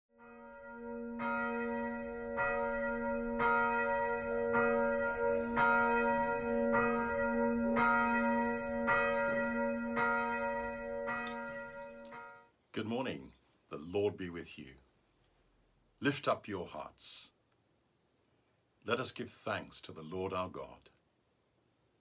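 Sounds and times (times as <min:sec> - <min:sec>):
church bell tolling: 0:00.1 - 0:12.6.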